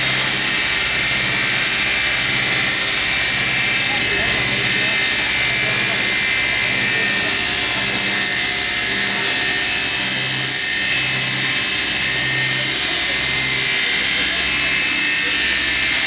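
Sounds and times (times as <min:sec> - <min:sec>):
circular saw ripping timber: 0:00.0 - 0:16.0.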